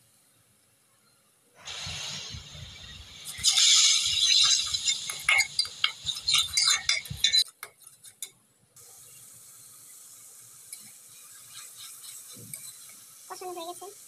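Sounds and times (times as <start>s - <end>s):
food sizzling: 1.6s - 8.2s, 8.8s - 14.0s
metal spatula scraping a pan: 3.3s - 8.3s, 11.1s - 13.0s.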